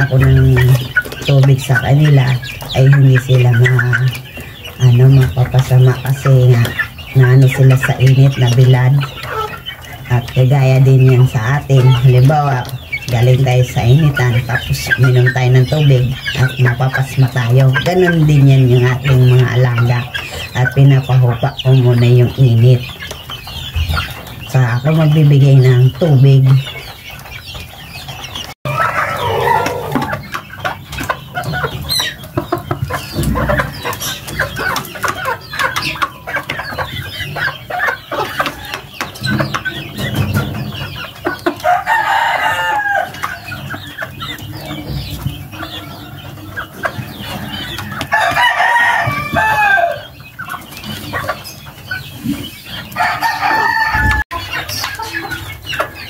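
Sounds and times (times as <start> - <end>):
young chickens clucking: 0.0 - 56.0
rooster crowing: 28.7 - 30.1, 48.1 - 50.1, 53.0 - 54.2.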